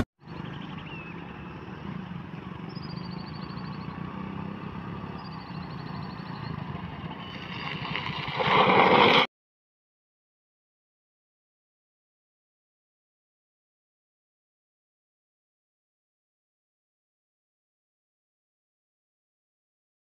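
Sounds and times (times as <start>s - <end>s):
motorcycle engine passing: 0.4s - 9.3s.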